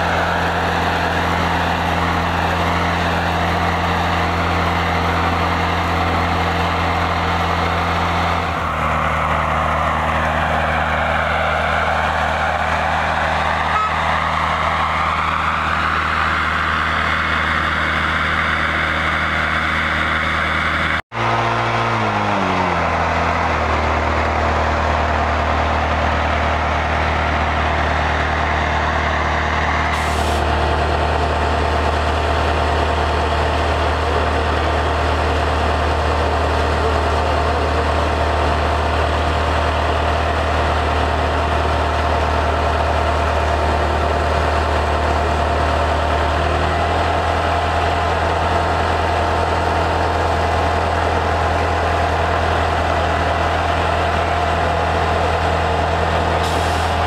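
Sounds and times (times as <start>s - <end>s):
engine and blower hum: 0.0s - 57.0s.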